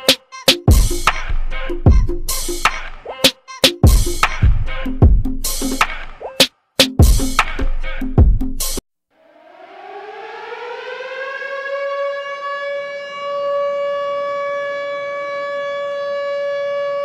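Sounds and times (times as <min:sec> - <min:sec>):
siren winding up: 0:09.2 - 0:17.0.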